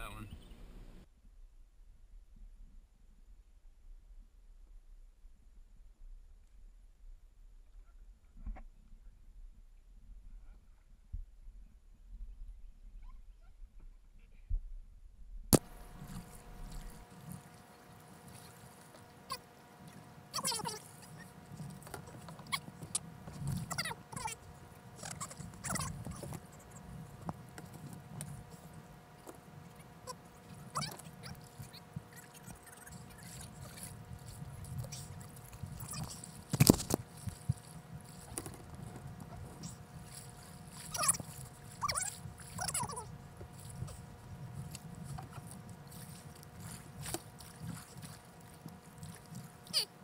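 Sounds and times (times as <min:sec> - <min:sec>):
low rumble of water: 0:00.0 - 0:50.0
paddle splashes: 0:15.6 - 0:50.0
kayak scraping against log: 0:30.5 - 0:42.6.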